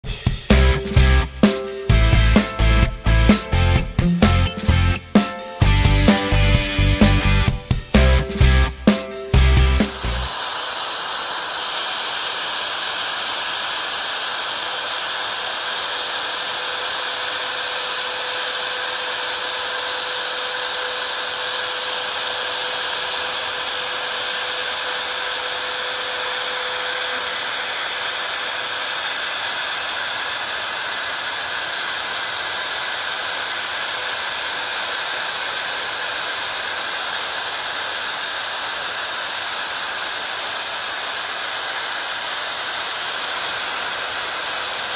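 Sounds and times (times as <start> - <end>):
router spindle milling metal: 9.4 - 44.9.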